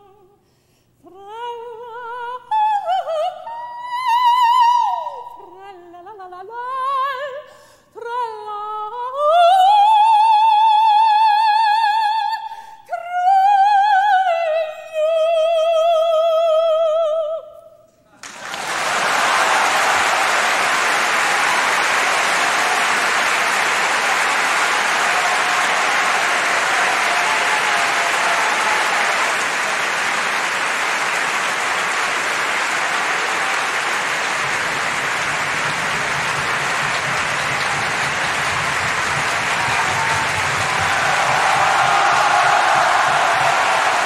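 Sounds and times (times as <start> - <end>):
audience applause: 18.2 - 44.0.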